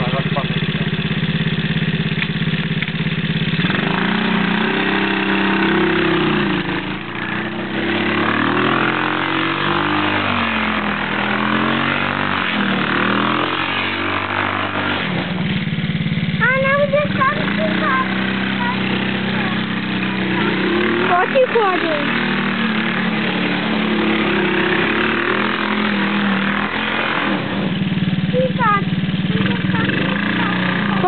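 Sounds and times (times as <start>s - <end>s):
quad engine idling and revving: 0.0s - 31.0s.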